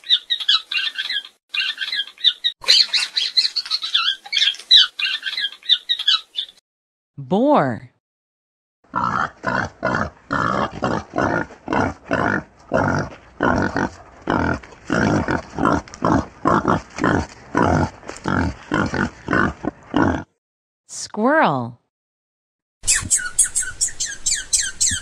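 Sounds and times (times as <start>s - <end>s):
wild boar grunting: 8.9s - 20.4s.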